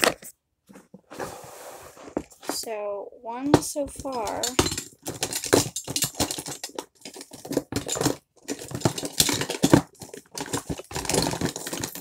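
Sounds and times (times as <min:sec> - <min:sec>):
plastic toys clicking and clattering: 0:03.6 - 0:12.0.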